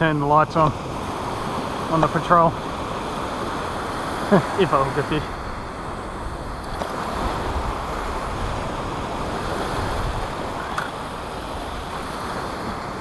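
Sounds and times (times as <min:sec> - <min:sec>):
surf washing up beach: 0:00.0 - 0:13.0
wind buffeting microphone: 0:04.8 - 0:13.0.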